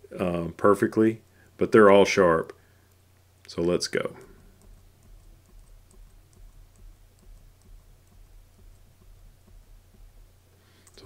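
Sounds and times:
low steady hum: 0.0 - 11.0
computer mouse clicking: 4.0 - 11.0.

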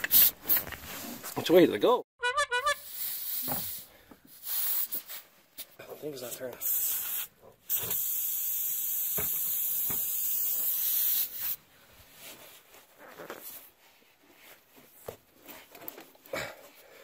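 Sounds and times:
air hissing from tire: 0.0 - 0.6, 2.8 - 5.2, 6.6 - 11.6.

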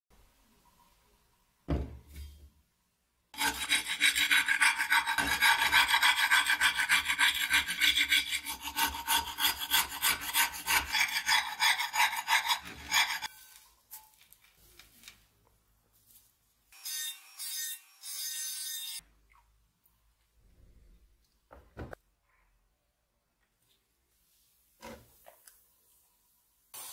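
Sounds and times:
metal scraper scraping frying pan: 3.4 - 13.4.

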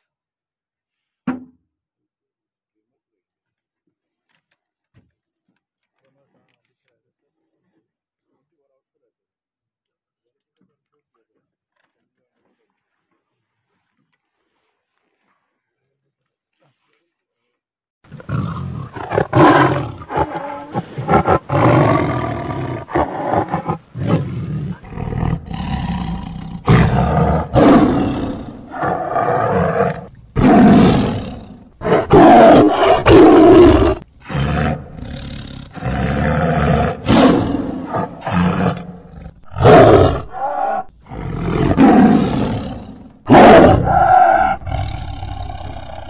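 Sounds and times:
tiger roaring and growling: 18.1 - 46.0.

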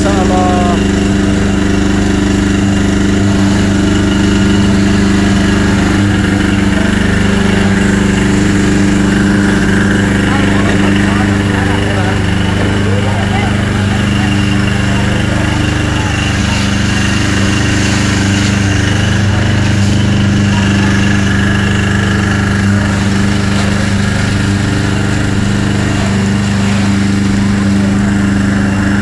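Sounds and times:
hose jet spraying: 0.0 - 29.0
people's voices: 0.0 - 29.0
pump engine running steadily: 0.0 - 29.0.

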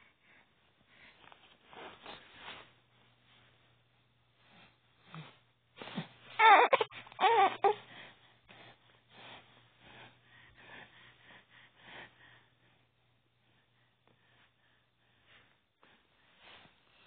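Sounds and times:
baby breathy sounds: 5.0 - 9.4
baby high-pitched vocal sounds: 6.4 - 7.8.

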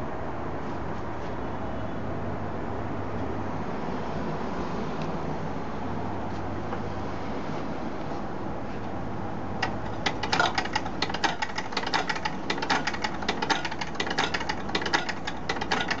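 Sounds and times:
automaton clicking and tapping: 9.6 - 16.0.

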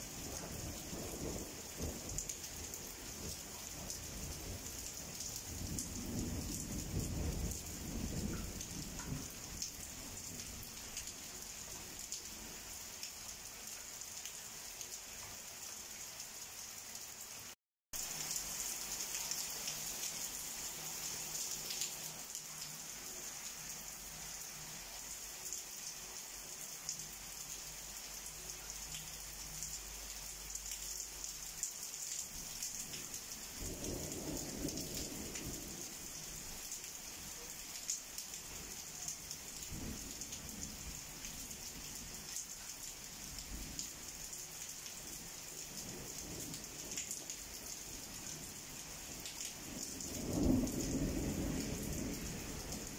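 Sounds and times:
heavy rain falling: 0.0 - 52.9
low rumble of thunder: 0.2 - 11.1, 33.6 - 36.0, 49.2 - 52.9.

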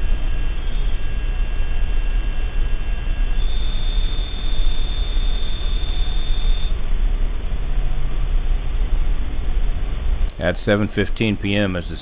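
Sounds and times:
steady hiss and low hum: 0.0 - 12.0
thin high steady tone: 3.1 - 6.8.

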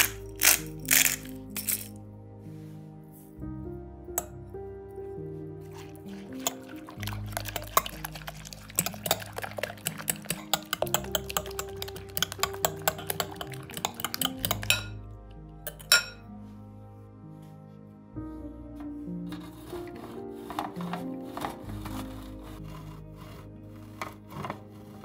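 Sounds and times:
fork beating eggs in glass bowl: 0.0 - 1.9, 5.6 - 15.0
fork clinking on bowl: 6.2 - 15.0, 15.7 - 16.2.

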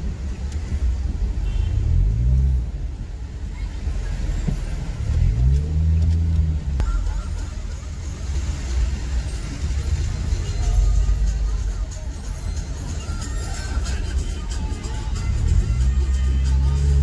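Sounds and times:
car engine: 0.0 - 17.0
road rumble: 0.0 - 17.0.

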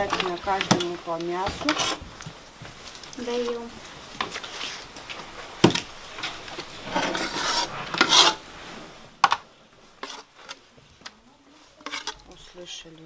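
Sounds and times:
metal pot and bowl clanking: 0.0 - 2.0, 5.6 - 8.4, 11.8 - 12.7.

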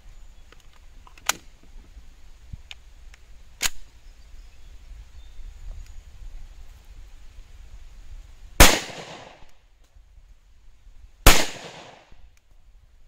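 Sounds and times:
pistol click: 8.6 - 9.3, 11.3 - 12.0.

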